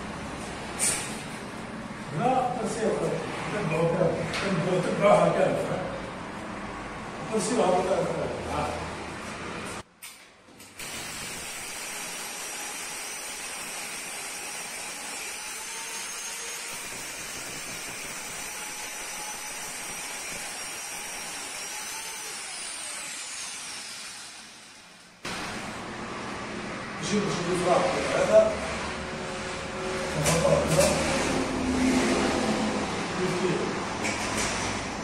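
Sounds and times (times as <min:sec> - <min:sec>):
power tool motor whine: 0:10.8 - 0:24.9.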